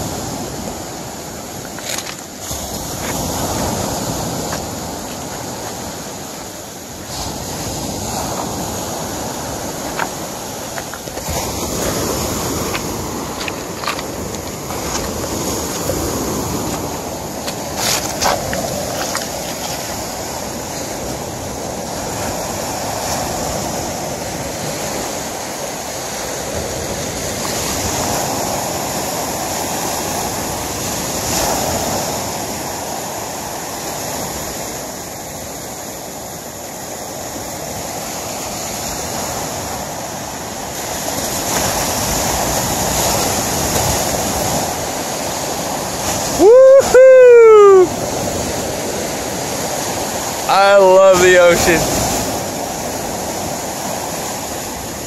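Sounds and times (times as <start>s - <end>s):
waves washing on pebble beach: 0.0s - 55.0s
footsteps on wet stones: 9.9s - 20.0s.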